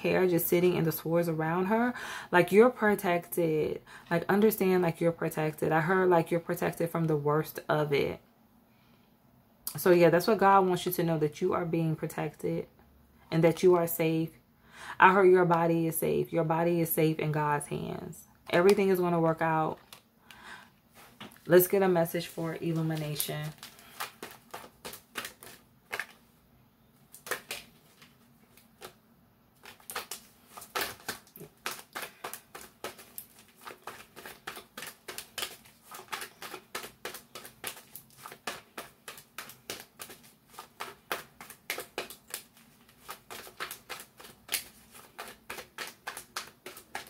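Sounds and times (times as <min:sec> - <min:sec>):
cards being shuffled: 0:21.0 - 0:26.2, 0:27.0 - 0:29.0, 0:29.6 - 0:47.0.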